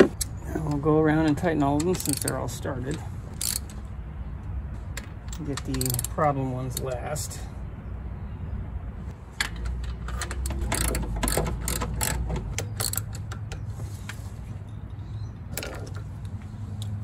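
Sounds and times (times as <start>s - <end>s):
socket ratchet clicking: 1.8s - 2.4s, 3.4s - 3.8s, 5.6s - 6.2s, 9.6s - 13.4s.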